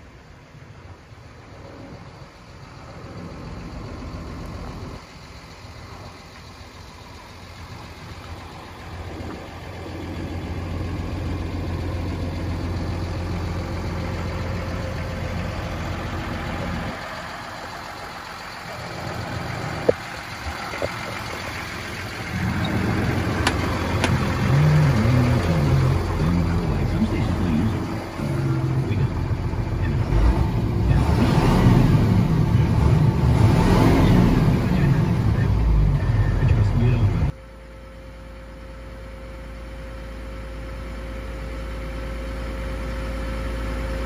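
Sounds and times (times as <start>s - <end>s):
engine idling: 0.0s - 44.0s
cab door clicks: 23.4s - 24.2s.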